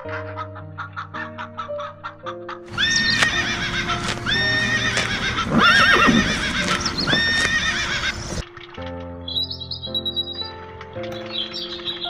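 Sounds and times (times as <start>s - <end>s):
music: 0.0s - 12.0s
horse whinnying: 2.7s - 8.4s.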